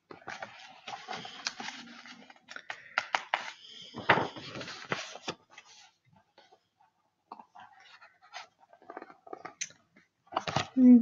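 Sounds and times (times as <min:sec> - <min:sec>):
paper rustling: 0:00.0 - 0:06.6, 0:10.3 - 0:10.9.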